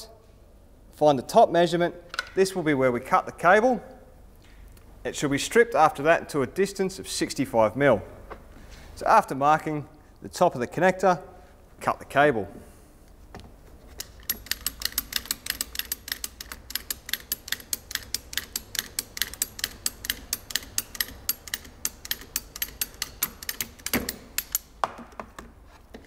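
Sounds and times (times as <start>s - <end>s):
ratchet pawl clicking: 14.0s - 24.7s.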